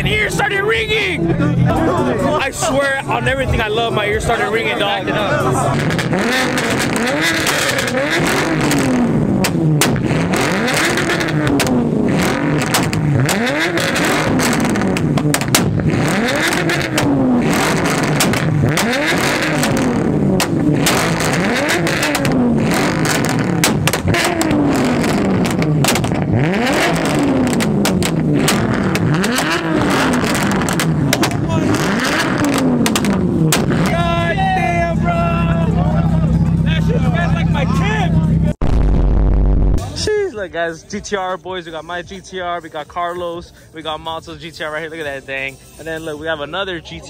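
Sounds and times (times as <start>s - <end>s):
car engine revving: 0.0s - 40.0s
exhaust pops and bangs: 5.7s - 34.3s.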